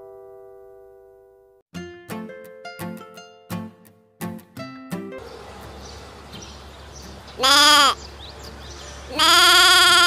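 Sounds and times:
plucked string music: 0:01.7 - 0:07.3.

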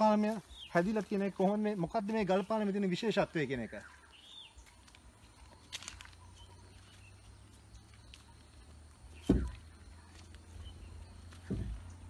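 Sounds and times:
footsteps scuffing on stone: 0:00.0 - 0:02.6, 0:03.5 - 0:12.0
faint bird chirps: 0:03.3 - 0:12.0.

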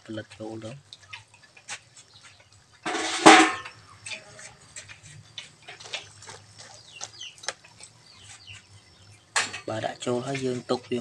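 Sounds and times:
metal ladle clanking on pot: 0:02.8 - 0:04.2.

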